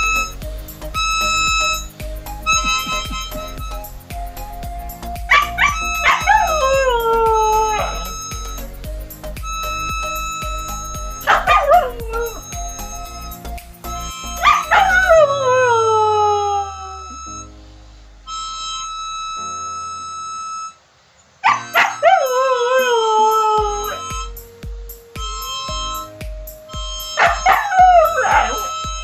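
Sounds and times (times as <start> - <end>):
background music: 0.0 - 18.8, 21.5 - 29.0
dog howling: 5.3 - 8.2, 11.2 - 12.7, 14.3 - 17.1, 27.2 - 28.9.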